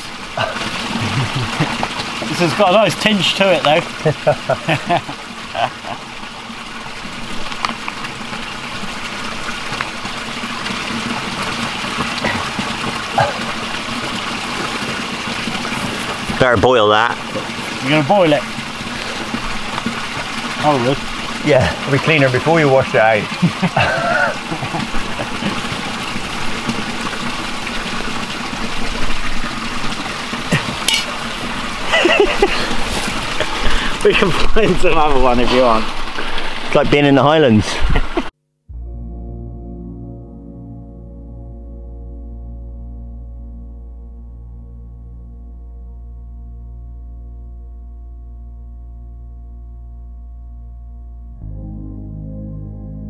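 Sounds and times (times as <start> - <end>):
running water rushing: 0.0 - 38.3
metal pot clink: 30.8 - 31.2.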